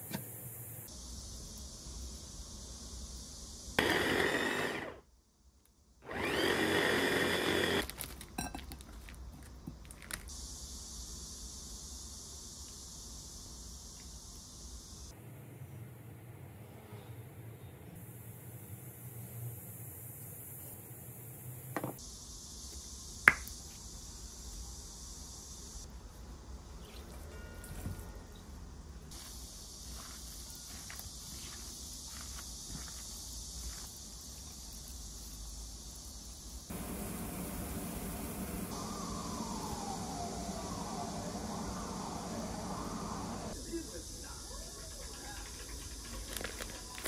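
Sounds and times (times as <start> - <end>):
hand blender motor whine: 3.8 - 5.0, 6.0 - 8.0.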